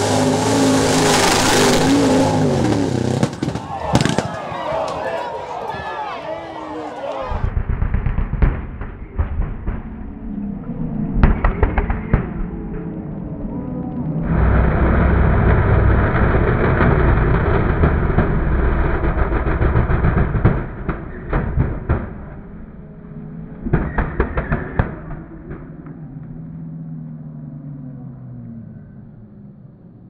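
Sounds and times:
truck engine revving hard: 0.0s - 3.5s, 14.2s - 20.9s
exhaust cracks and bangs: 0.0s - 5.0s, 7.3s - 10.4s, 14.2s - 22.8s.

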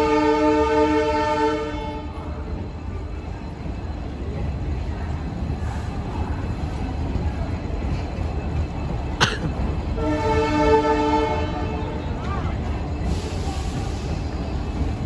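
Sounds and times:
train horn: 0.0s - 2.2s, 9.9s - 12.2s
train coaches rumbling: 0.0s - 15.0s.

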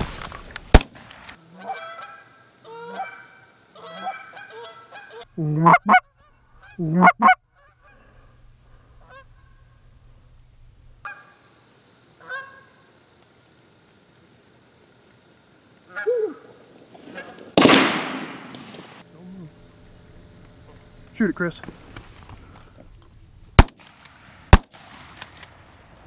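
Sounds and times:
shotgun blast: 0.7s - 1.2s, 17.6s - 19.0s, 23.6s - 25.6s
geese honking: 1.4s - 8.4s, 9.0s - 9.8s, 11.0s - 11.5s, 12.2s - 12.9s, 15.9s - 16.4s, 17.0s - 17.6s.

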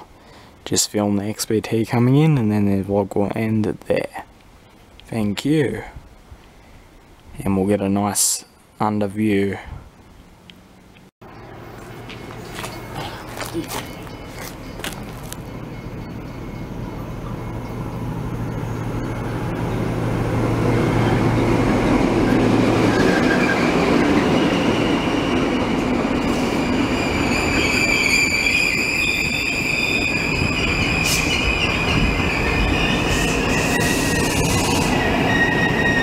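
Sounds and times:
train engine drone: 10.0s - 36.0s
train wheel rumble: 11.8s - 36.0s
high-pitched brake squeal: 20.6s - 36.0s.

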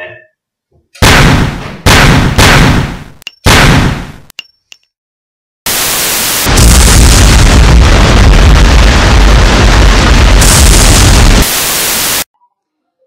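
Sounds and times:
deep rumble: 6.5s - 11.4s.

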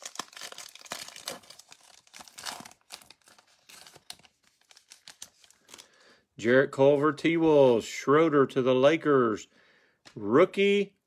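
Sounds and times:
foil wrapper crinkling and tearing: 0.0s - 6.0s.

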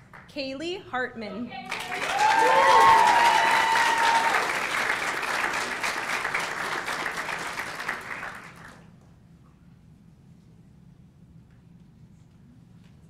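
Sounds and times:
audience cheer: 1.7s - 5.8s
audience applauding: 1.7s - 8.8s.

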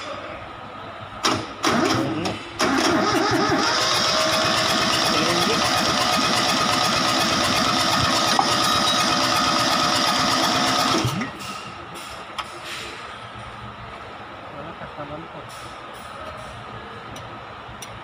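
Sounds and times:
diesel engine cranking: 1.2s - 12.6s.

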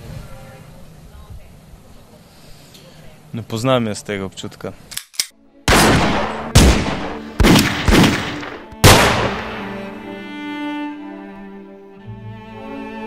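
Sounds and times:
pistol shots: 5.0s - 9.9s
slow bowed string music: 8.4s - 13.0s.

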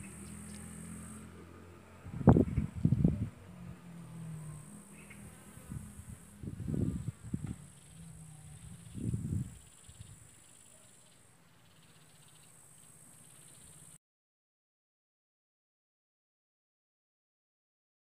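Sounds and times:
fly buzzing: 0.0s - 1.4s, 4.4s - 10.7s
insect trill: 0.0s - 1.4s, 4.0s - 14.0s
low rumbles on microphone: 2.0s - 3.8s, 5.1s - 10.2s.

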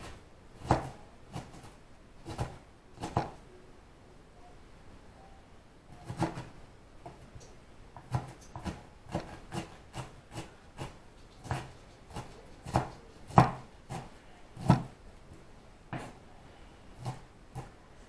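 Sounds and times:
knife chopping on cutting board: 0.6s - 3.4s, 8.0s - 15.0s, 17.0s - 17.7s.

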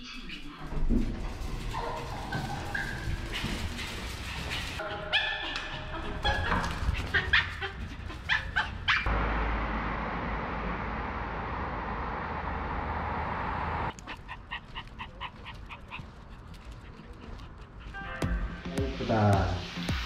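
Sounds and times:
dogs whining and yipping: 1.8s - 9.1s, 13.9s - 17.4s
road traffic hum: 5.6s - 18.0s.

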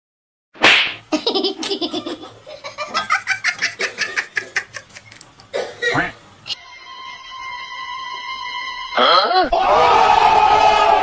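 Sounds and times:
person laughing hard: 1.2s - 5.1s.

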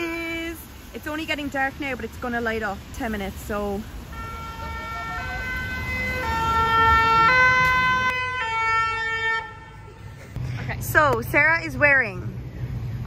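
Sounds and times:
low traffic rumble: 0.0s - 13.0s
two-tone siren: 4.1s - 10.0s.

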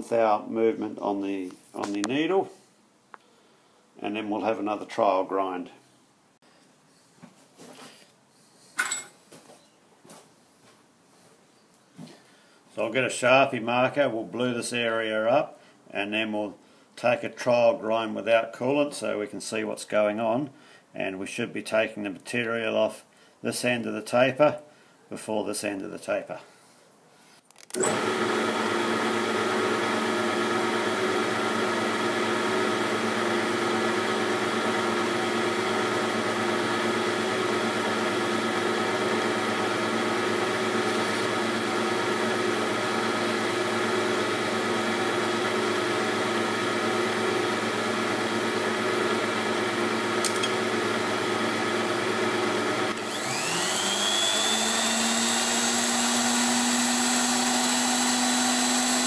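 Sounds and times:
machinery motors whining: 50.1s - 58.9s
motor spinning up: 52.6s - 59.0s.

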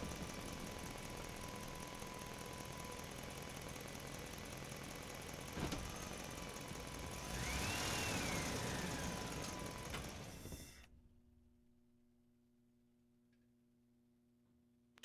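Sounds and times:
road traffic: 0.0s - 10.6s
engine running: 0.0s - 10.9s.

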